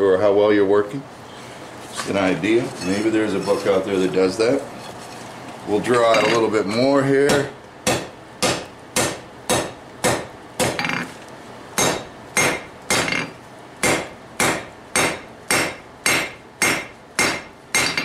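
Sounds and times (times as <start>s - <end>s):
hammer striking steel on anvil: 7.3s - 11.1s, 11.8s - 18.0s.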